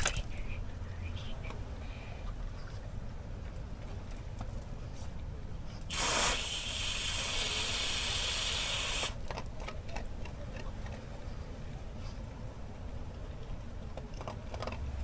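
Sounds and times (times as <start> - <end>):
water hissing through hose splitter: 5.9 - 9.2.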